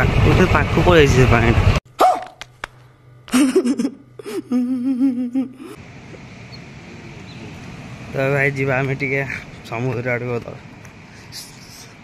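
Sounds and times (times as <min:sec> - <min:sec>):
outdoor background hiss: 0:02.8 - 0:12.0.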